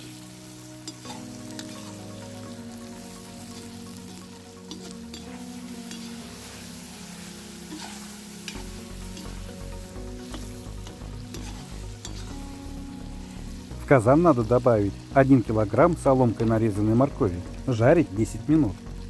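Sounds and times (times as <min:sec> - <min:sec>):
background music: 0:00.0 - 0:19.0
meat sizzling in hot oil: 0:00.0 - 0:19.0
spatula scraping a pot: 0:04.7 - 0:06.2, 0:07.6 - 0:09.5, 0:11.3 - 0:12.4.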